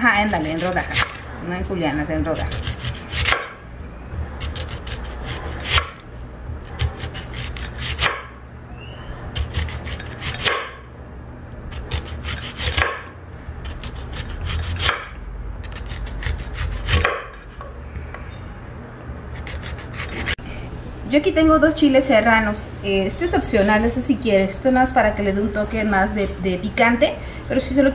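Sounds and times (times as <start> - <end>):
knife slicing onion: 0.0 - 1.2, 2.2 - 3.6, 4.4 - 6.0, 6.6 - 8.4, 9.3 - 10.8, 11.7 - 17.6, 19.3 - 20.4
low steady rumble: 3.6 - 7.3, 13.1 - 27.9.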